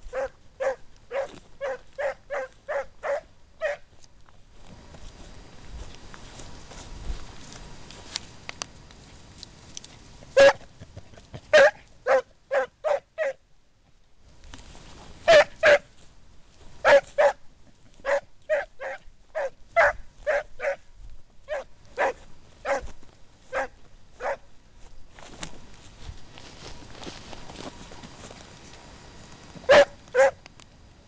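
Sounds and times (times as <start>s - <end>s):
hound barking: 0.0s - 3.9s, 10.4s - 10.7s, 11.5s - 13.4s, 15.3s - 15.9s, 16.8s - 20.9s, 21.5s - 24.5s, 29.7s - 30.4s.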